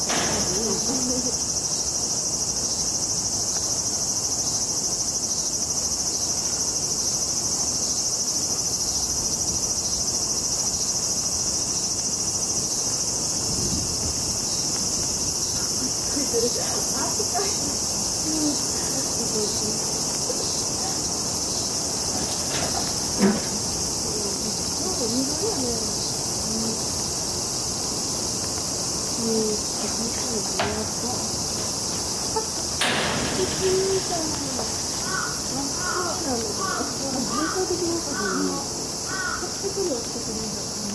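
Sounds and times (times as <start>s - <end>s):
sharp knocks: 0.0s - 1.0s, 29.8s - 31.8s, 32.8s - 36.2s
insect chorus drone: 0.0s - 40.9s.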